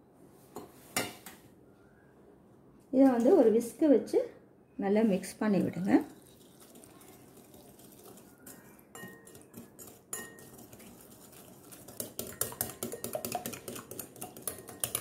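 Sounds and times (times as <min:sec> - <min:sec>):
whisk beating in glass bowl: 0:06.1 - 0:15.0.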